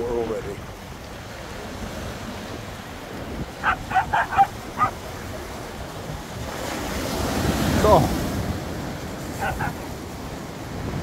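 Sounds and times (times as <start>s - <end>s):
surf: 0.0s - 11.0s
wind: 0.0s - 11.0s
dog barking: 3.6s - 5.0s, 9.3s - 9.9s.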